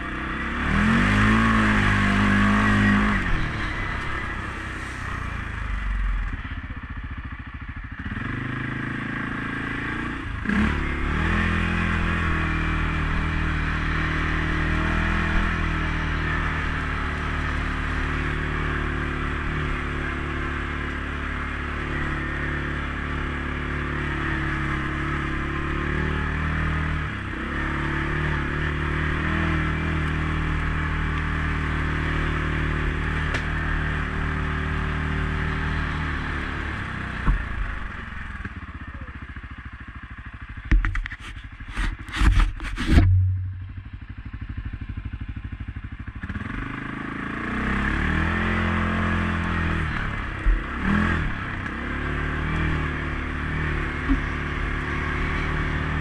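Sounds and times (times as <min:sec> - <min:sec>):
atv engine revving: 0:00.0 - 0:56.0
sharp knock: 0:42.2 - 0:43.8.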